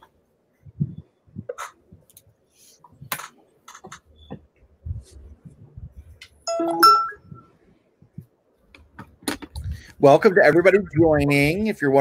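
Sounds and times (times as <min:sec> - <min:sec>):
two-note chime: 0:06.5 - 0:07.4.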